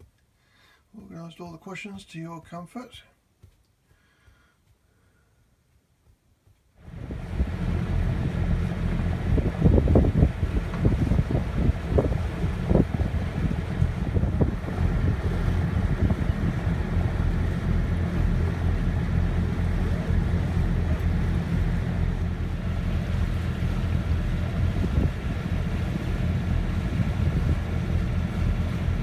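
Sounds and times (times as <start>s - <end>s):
steady low drone: 6.8s - 29.0s
water washing along hull: 6.8s - 29.0s
wind buffeting microphone: 6.9s - 29.0s.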